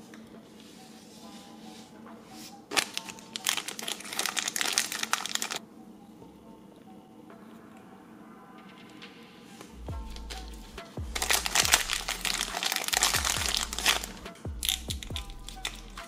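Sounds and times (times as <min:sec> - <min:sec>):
plastic bag crinkling: 0:02.7 - 0:05.6, 0:11.2 - 0:15.8.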